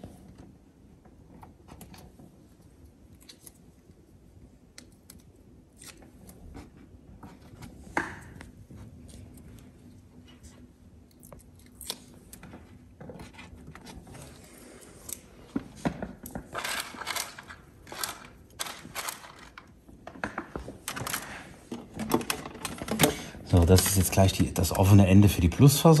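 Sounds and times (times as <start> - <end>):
tools clicking and scraping: 16.3 - 19.7.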